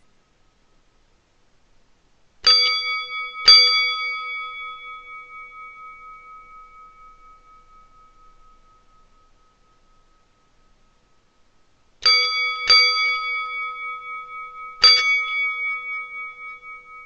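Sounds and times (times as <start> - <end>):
metal table bell ringing: 2.5 - 10.3, 12.0 - 17.0.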